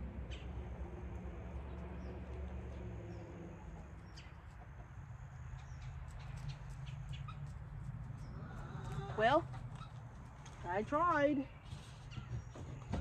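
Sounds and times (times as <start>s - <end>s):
chickens clucking: 1.7s - 10.6s.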